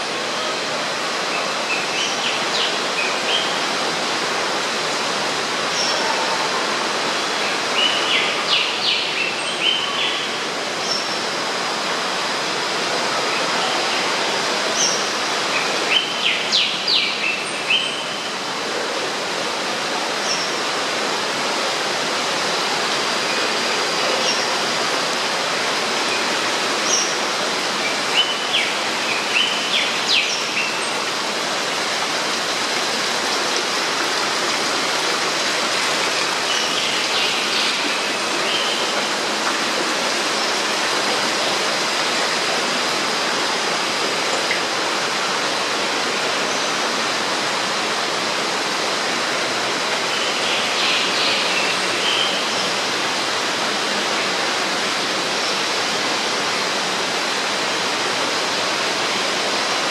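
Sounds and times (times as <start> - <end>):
running water: 0.0 - 59.9.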